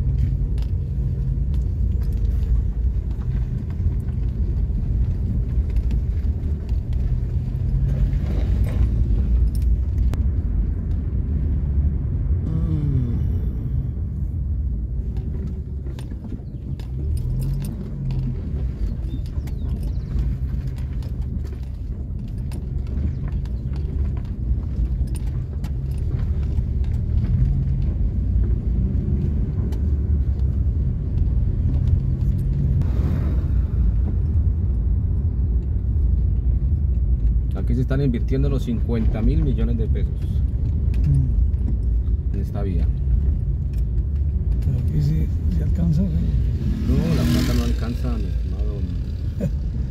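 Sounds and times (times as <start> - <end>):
car engine and tyre rumble: 0.0 - 49.9
car rattles and knocks: 14.5 - 32.9.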